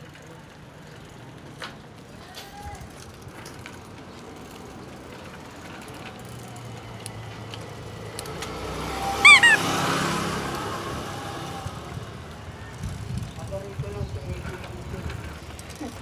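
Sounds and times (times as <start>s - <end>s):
bicycle tyre and wind noise: 0.0s - 7.9s, 11.3s - 16.0s
bicycle clicks and ticks: 2.9s - 8.6s.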